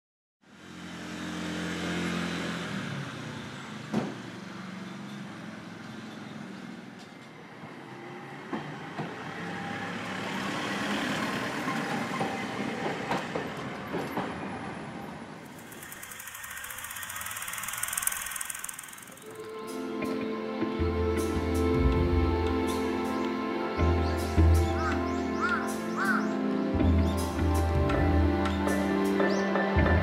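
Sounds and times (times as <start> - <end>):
street traffic: 0.4 - 30.0
streetcar rumbling on rails: 0.5 - 30.0.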